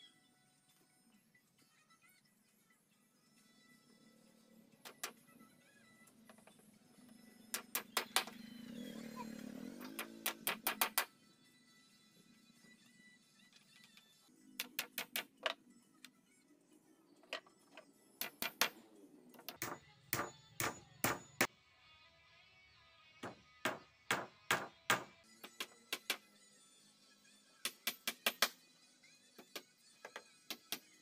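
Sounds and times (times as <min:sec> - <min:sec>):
background music: 0:00.0 - 0:31.0
hammer driving nails into wood: 0:09.9 - 0:11.1, 0:19.4 - 0:21.5, 0:23.2 - 0:26.2.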